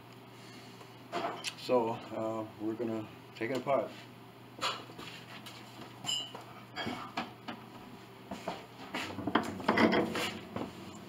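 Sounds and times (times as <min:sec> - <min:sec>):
rubbing and knocking: 0:08.4 - 0:10.9.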